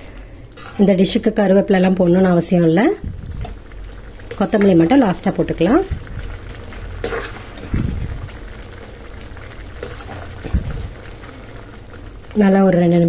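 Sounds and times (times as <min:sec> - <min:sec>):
ladle stirring: 0:00.0 - 0:01.8, 0:03.1 - 0:12.4
gravy simmering in a frying pan: 0:00.6 - 0:13.0
soft low thuds: 0:03.0 - 0:03.6
ladle clicking on pan: 0:07.0 - 0:07.4.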